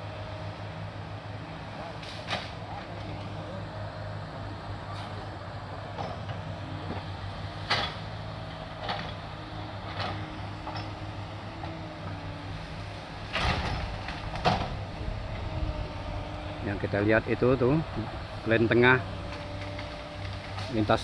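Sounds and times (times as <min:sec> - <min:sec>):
excavator diesel engine running: 0:00.0 - 0:21.0
branches cracking and knocking: 0:13.2 - 0:15.5.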